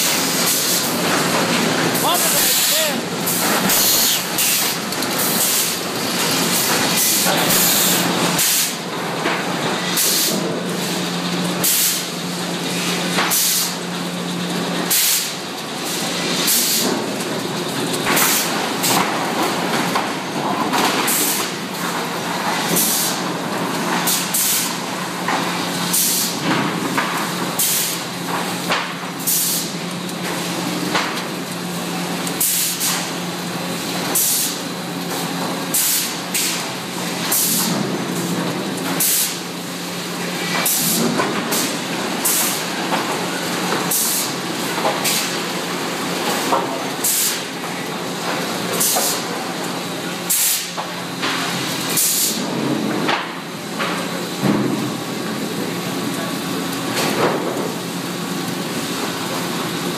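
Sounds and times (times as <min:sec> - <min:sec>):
machinery hum: 0:00.0 - 0:59.9
sharp hisses and clacks: 0:07.0 - 0:08.8, 0:14.9 - 0:15.4, 0:29.2 - 0:29.7, 0:32.4 - 0:33.1, 0:47.0 - 0:47.5, 0:50.3 - 0:50.8.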